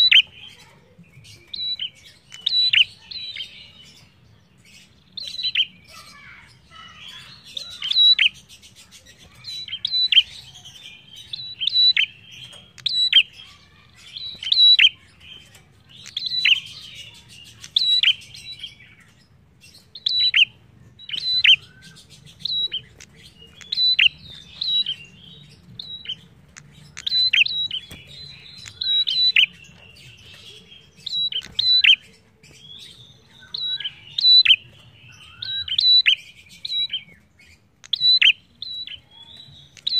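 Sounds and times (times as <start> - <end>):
soft bird twittering: 0.0 - 39.9
bird chirping sharply: 19.8 - 39.9.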